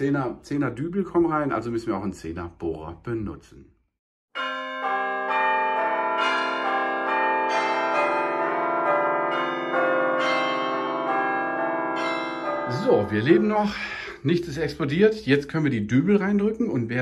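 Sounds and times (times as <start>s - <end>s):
bell-like chimes music: 4.4s - 14.2s.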